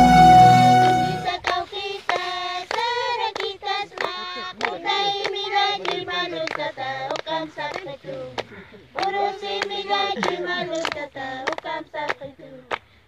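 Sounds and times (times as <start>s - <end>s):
flute tune: 0.0s - 1.4s
hands clapping: 0.7s - 12.9s
women and girl singing folk song: 1.2s - 13.0s.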